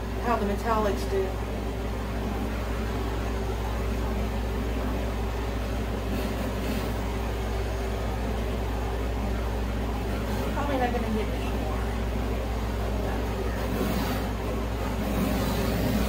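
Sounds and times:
torch flame hissing: 0:13.6 - 0:16.0.

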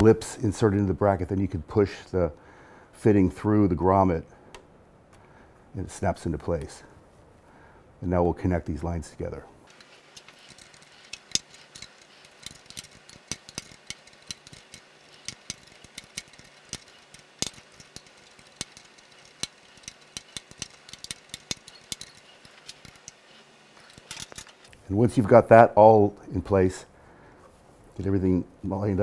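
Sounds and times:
wrench clicking on metal fitting: 0:09.8 - 0:24.6.

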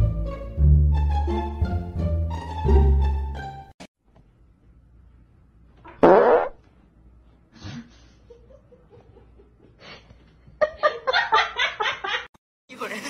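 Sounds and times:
fart: 0:05.9 - 0:06.6.

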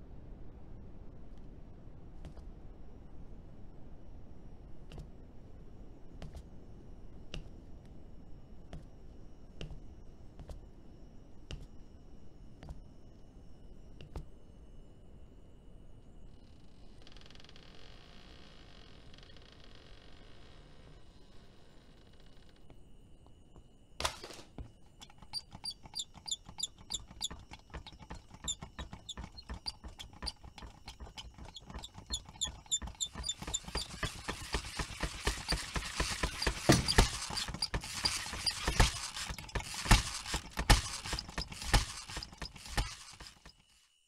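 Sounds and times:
toy tricycle clicking and rattling: 0:25.0 - 0:43.6.

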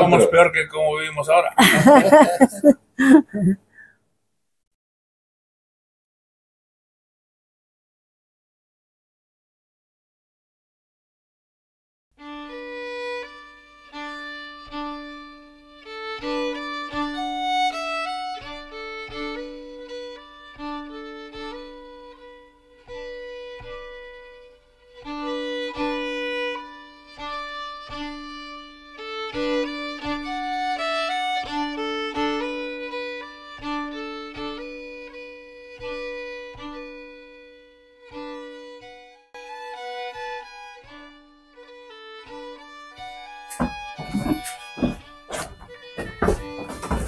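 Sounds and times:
violin-like melody: 0:12.2 - 0:47.0.

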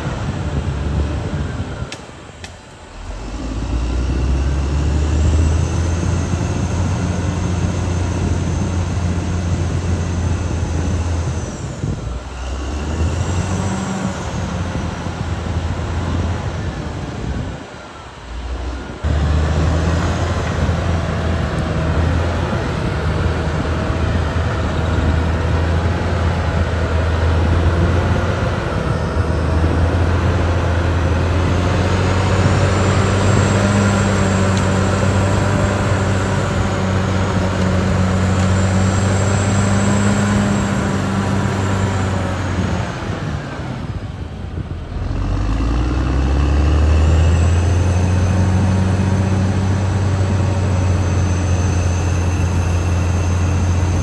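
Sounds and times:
thin high whine: 0:00.0 - 0:21.0, 0:47.2 - 0:54.0
bulldozer diesel engine under load: 0:00.0 - 0:54.0.

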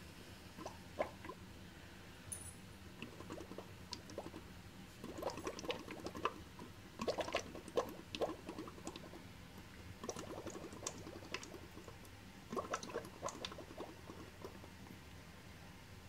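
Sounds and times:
bubbling through a straw in water: 0:00.5 - 0:01.4, 0:03.0 - 0:14.9.

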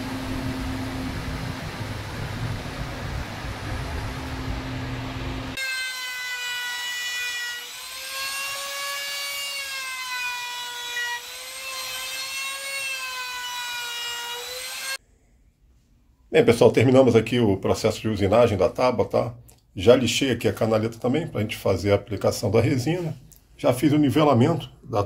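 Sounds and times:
noisy machine: 0:00.0 - 0:05.6
trim router whining: 0:00.0 - 0:15.0.

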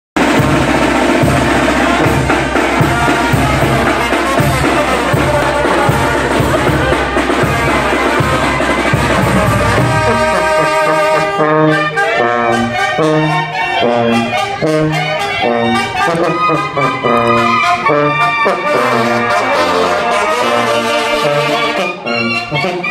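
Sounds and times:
bass and drum beat: 0:00.2 - 0:10.9
brass band playing: 0:00.2 - 0:22.9.

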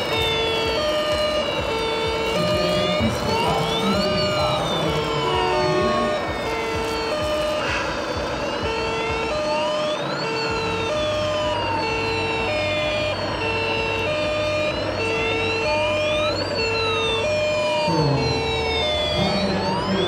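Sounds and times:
rising and falling siren wail: 0:00.0 - 0:20.0
steady low hum: 0:00.0 - 0:20.0
two-tone siren: 0:00.0 - 0:20.0.

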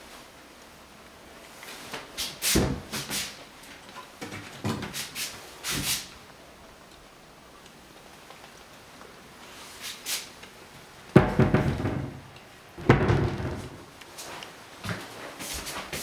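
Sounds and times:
cabinet doors knocking and clacking: 0:11.2 - 0:13.9.

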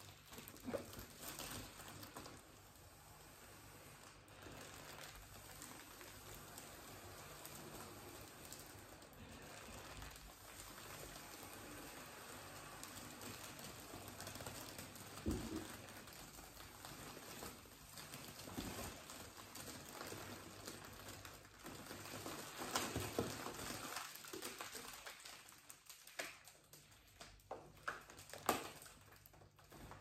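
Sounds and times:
foil balloon crinkling: 0:00.0 - 0:30.0.

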